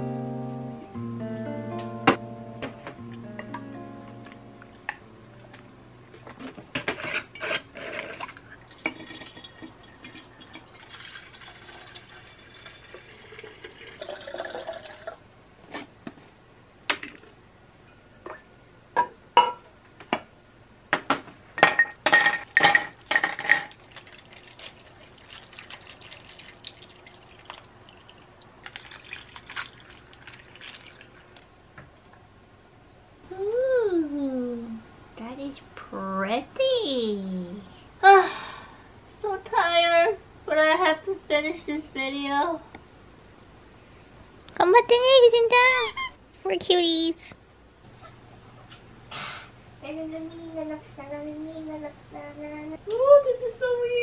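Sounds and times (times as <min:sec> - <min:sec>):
drink pouring into glass: 0:08.6 - 0:15.2, 0:22.7 - 0:31.5
liquid pouring over ice: 0:08.7 - 0:15.2, 0:23.4 - 0:31.5
glass clinking: 0:21.6 - 0:23.8.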